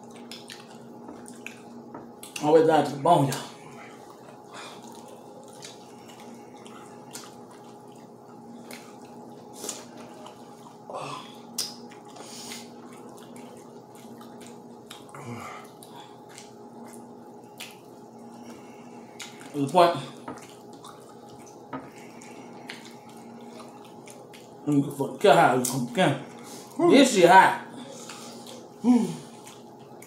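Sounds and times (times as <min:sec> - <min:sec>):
chewing clicks: 0:04.8 - 0:10.4
wet mouth smacks: 0:11.5 - 0:12.7
person murmuring: 0:28.8 - 0:29.3.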